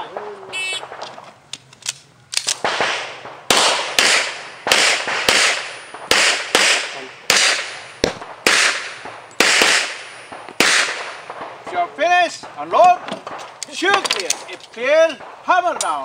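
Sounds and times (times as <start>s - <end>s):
handgun shots: 2.4s - 11.3s.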